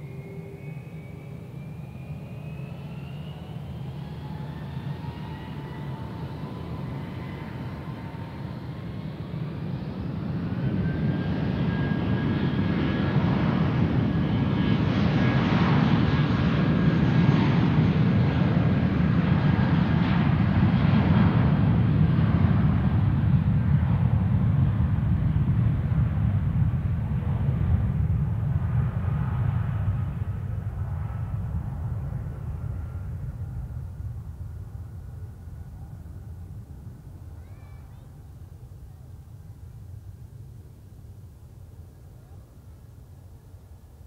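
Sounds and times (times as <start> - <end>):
jet engines spooling up: 0.0 - 8.8.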